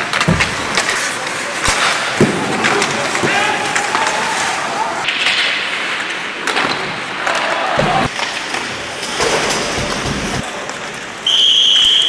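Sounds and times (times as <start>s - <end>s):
hockey sticks and puck clicking: 0.0s - 11.1s
crowd noise: 0.0s - 12.0s
referee's whistle: 11.2s - 12.0s.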